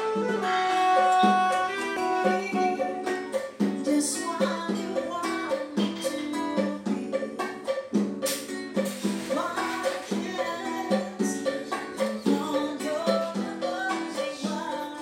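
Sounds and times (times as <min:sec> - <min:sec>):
person singing: 0:00.0 - 0:07.9, 0:09.2 - 0:15.0
plucked acoustic guitar: 0:00.0 - 0:15.0
steady beat: 0:07.6 - 0:10.8.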